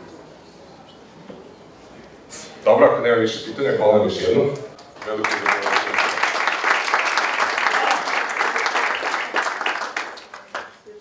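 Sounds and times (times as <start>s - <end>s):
audience applauding: 4.8s - 11.0s.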